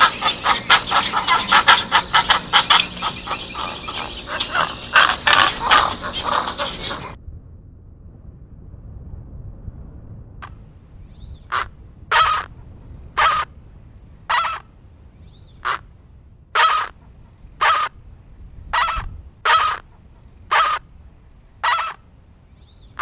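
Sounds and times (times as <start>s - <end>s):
flamingos honking: 0.0s - 7.2s, 11.5s - 12.6s, 13.2s - 13.5s, 14.3s - 14.7s, 15.6s - 15.9s, 16.6s - 17.0s, 17.6s - 18.0s, 18.7s - 20.9s, 21.6s - 22.1s.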